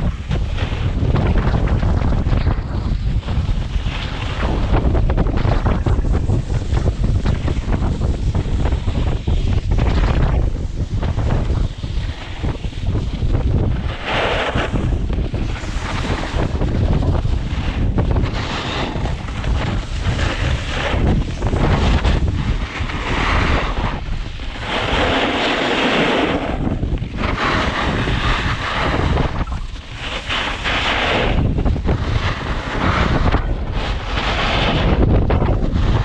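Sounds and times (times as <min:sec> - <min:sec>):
strong wind buffeting microphone: 0:00.0 - 0:36.0.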